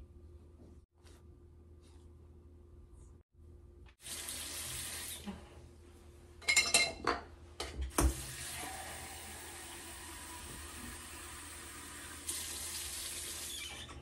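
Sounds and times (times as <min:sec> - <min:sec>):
water tap running into sink: 0:04.0 - 0:05.3, 0:07.9 - 0:13.8.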